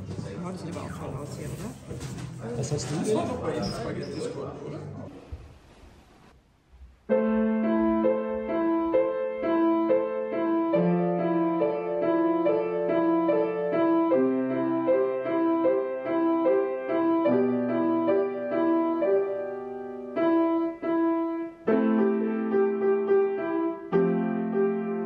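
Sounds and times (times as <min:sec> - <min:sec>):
upright piano playing: 0:07.1 - 0:25.0.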